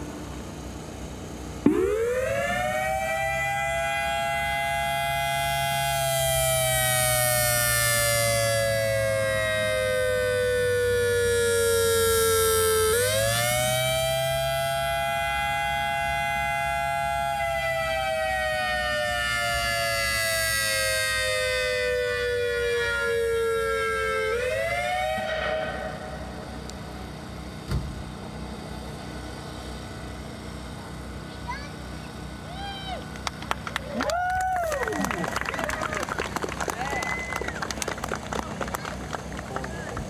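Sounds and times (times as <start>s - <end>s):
warning siren wailing: 1.6s - 26.7s.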